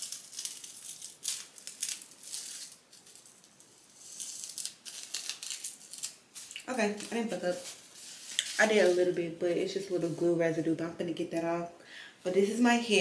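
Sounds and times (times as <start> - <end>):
hands rustling against hair: 6.4 - 9.3.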